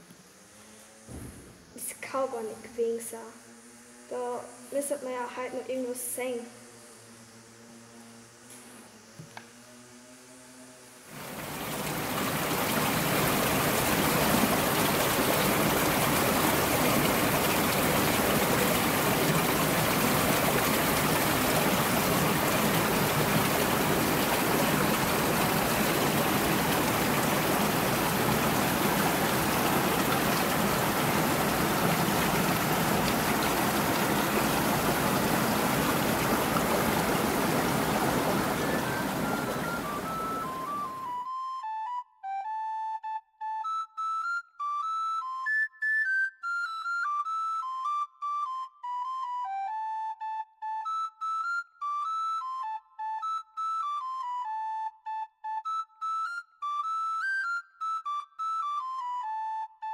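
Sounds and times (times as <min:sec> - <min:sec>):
stream rushing over boulders: 0:11.1 - 0:41.0
flute-like melody: 0:11.4 - 0:59.9.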